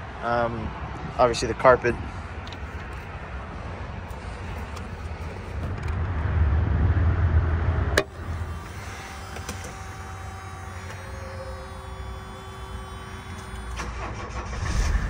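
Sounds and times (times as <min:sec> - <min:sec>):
low rumble of movement: 0:02.4 - 0:08.4, 0:14.3 - 0:15.0.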